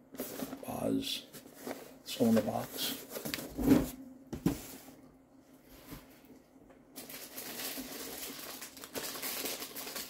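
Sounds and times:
packaging rustling: 7.0s - 10.0s.

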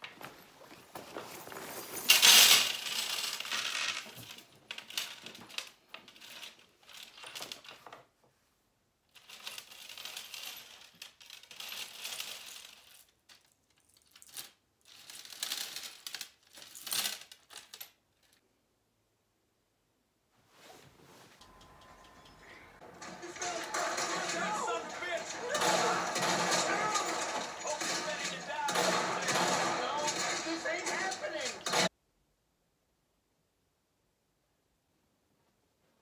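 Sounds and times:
metal pieces jingling: 22.2s - 31.9s.

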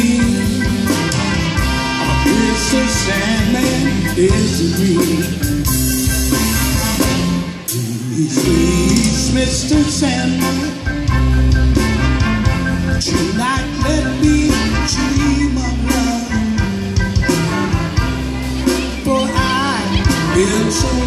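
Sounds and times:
person singing: 0.0s - 1.2s, 2.0s - 5.7s, 7.7s - 10.9s, 13.1s - 17.1s, 18.2s - 21.0s
bass: 0.0s - 21.0s
horn section: 0.0s - 21.0s
keyboard: 0.0s - 21.0s.

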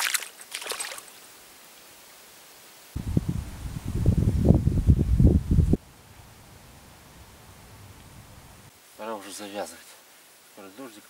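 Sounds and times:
wind gusting against microphone: 2.9s - 8.7s.

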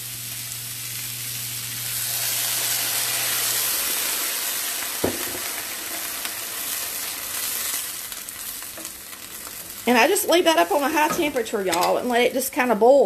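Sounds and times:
liquid sizzling in hot pan: 0.0s - 12.7s
knock: 5.0s - 5.4s.

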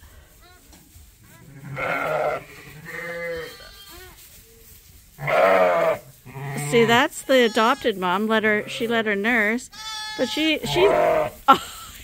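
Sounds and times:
sheep bleating: 1.4s - 4.0s, 5.2s - 9.0s, 9.7s - 11.4s.

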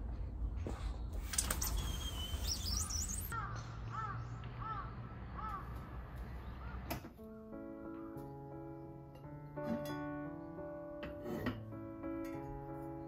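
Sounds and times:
crow cawing: 3.3s - 5.8s.

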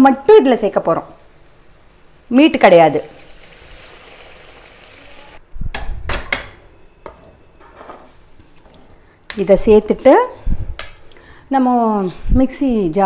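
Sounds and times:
stock pouring with sizzling hiss: 1.2s - 5.4s.

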